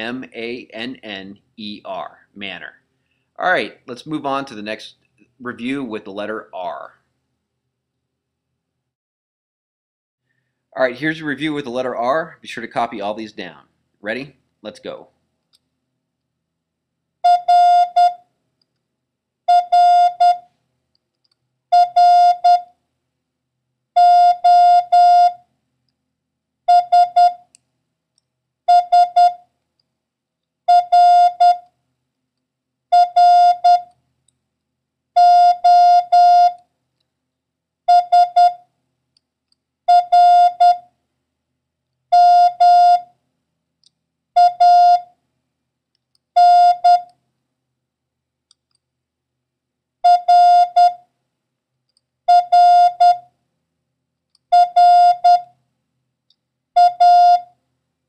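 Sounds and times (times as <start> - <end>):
morse code tones: 17.2 - 18.2, 19.5 - 20.4, 21.7 - 22.7, 24.0 - 25.4, 26.7 - 27.4, 28.7 - 29.4, 30.7 - 31.6, 32.9 - 33.9, 35.2 - 36.6, 37.9 - 38.6, 39.9 - 40.8, 42.1 - 43.1, 44.4 - 45.1, 46.4 - 47.1, 50.0 - 51.0, 52.3 - 53.2, 54.5 - 55.5, 56.8 - 57.5.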